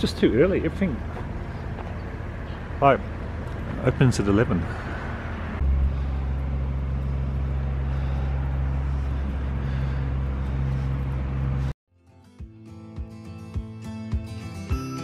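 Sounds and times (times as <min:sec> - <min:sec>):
low outdoor rumble: 0:00.0 - 0:11.8.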